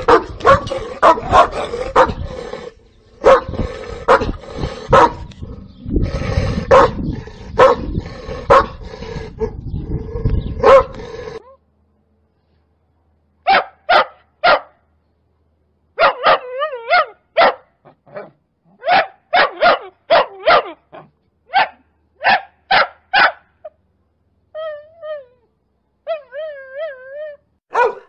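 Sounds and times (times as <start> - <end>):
puppy barking: 0.0 - 2.2, 3.2 - 3.5, 4.9 - 5.2, 6.7 - 7.0, 7.6 - 7.9, 8.5 - 8.7, 10.6 - 11.0, 13.5 - 14.8, 16.0 - 23.5, 27.7 - 28.0.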